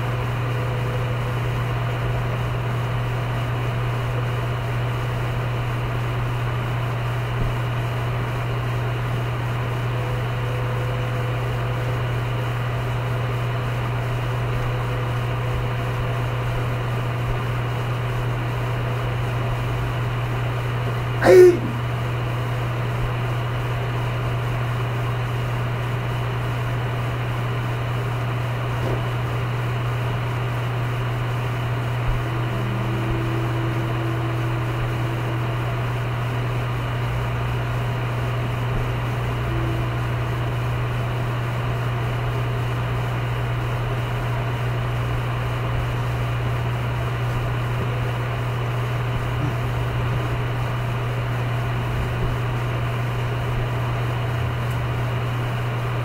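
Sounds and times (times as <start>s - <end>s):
low hum: 21.2s - 22.4s, 30.8s - 43.0s, 44.9s - 56.0s.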